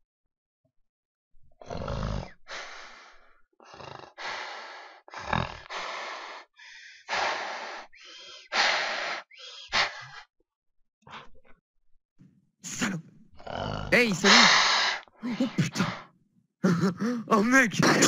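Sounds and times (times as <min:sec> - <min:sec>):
person making monster noises: 0:12.7 - 0:18.0.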